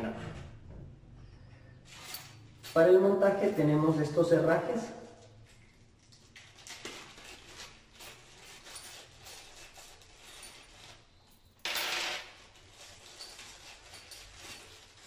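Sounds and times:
plastic bag crinkling: 4.8s - 11.2s.

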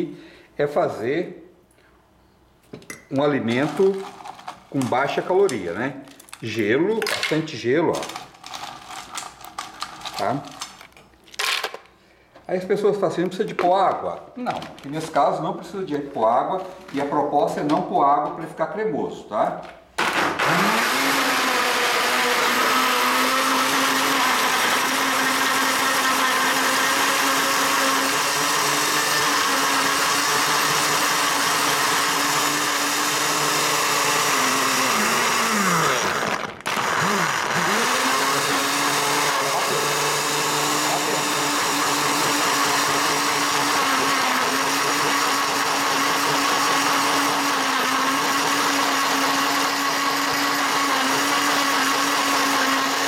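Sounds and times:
blender crushing ice: 3.4s - 11.9s, 20.0s - 53.0s.

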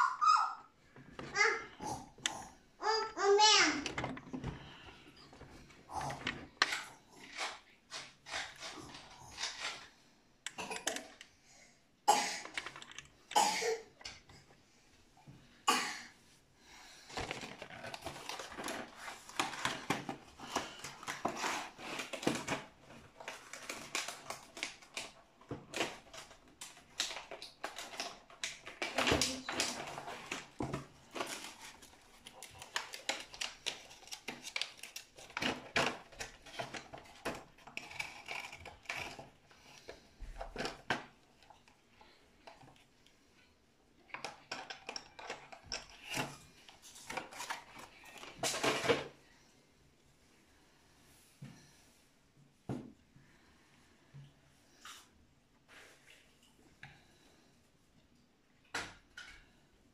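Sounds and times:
plastic parts clicking and rustling: 0.9s - 11.4s, 12.3s - 14.5s, 16.9s - 49.2s.

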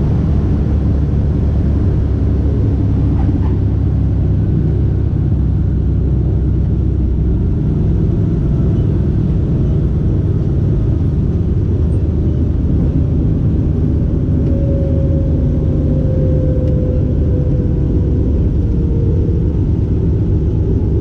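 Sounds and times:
propeller plane engine rumbling: 0.0s - 21.0s.

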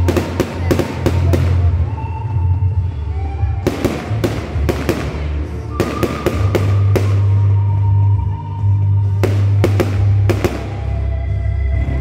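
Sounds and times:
fireworks bangs: 0.0s - 2.1s, 3.6s - 8.1s, 9.1s - 11.0s.

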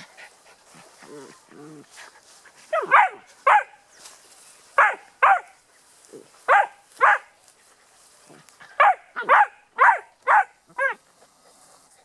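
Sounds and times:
puppy barking: 2.7s - 3.8s, 4.8s - 5.6s, 6.5s - 7.3s, 8.8s - 11.0s.

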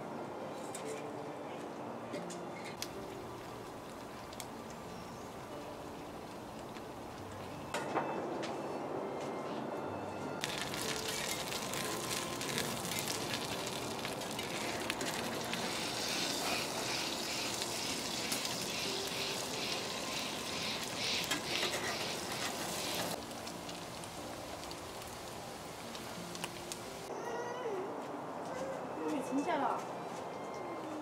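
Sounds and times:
food sizzling in a pan: 10.4s - 27.1s
spatula scraping a pan: 20.8s - 23.1s.

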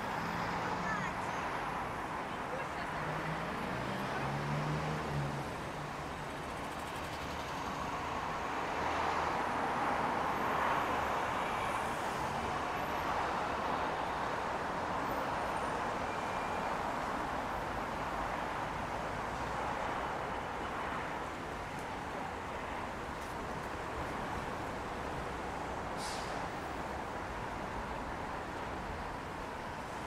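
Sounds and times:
vehicle passing: 3.0s - 5.6s
cars hissing on street: 23.8s - 30.0s.

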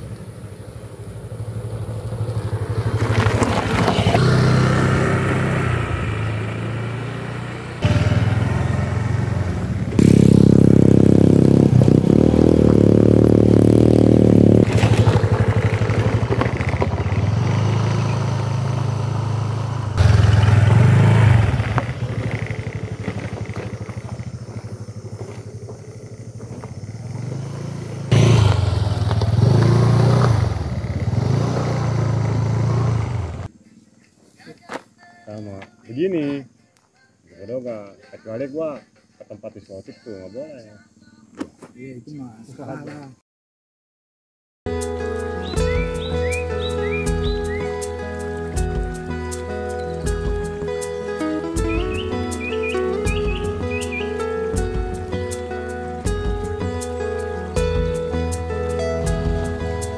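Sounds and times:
scooter engine passing by: 0.0s - 33.5s, 49.0s - 59.9s.

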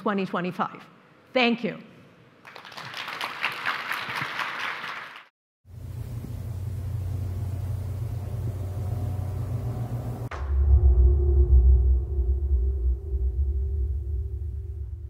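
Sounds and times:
audience applause: 2.4s - 5.3s
low rumbling drone: 5.7s - 15.0s.

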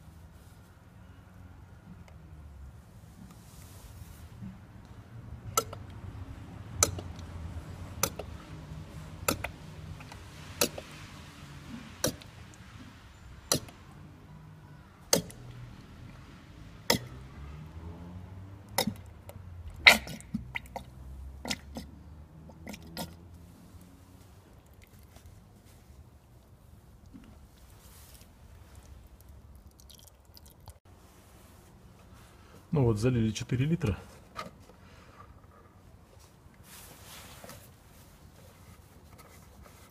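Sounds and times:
fluid glugging from plastic bottle: 19.7s - 21.9s, 29.3s - 30.8s.

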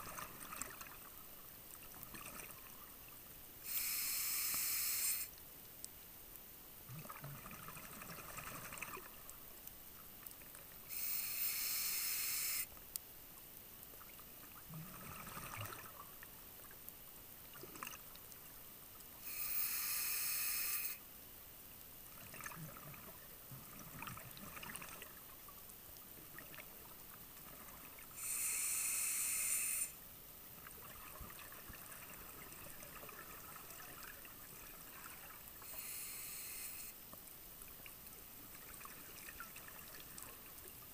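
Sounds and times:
regulator inhalation hiss: 3.6s - 5.3s, 10.9s - 12.7s, 19.2s - 21.0s, 28.2s - 30.0s, 35.6s - 37.0s.

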